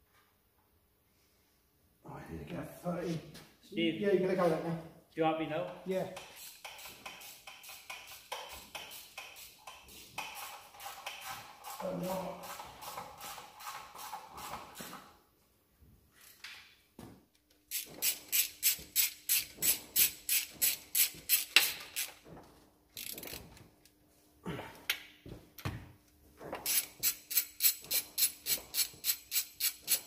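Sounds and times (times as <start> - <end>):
ratchet wrench clicking: 6.2 - 11.3, 17.7 - 22.2, 23.0 - 23.4, 26.6 - 30.0.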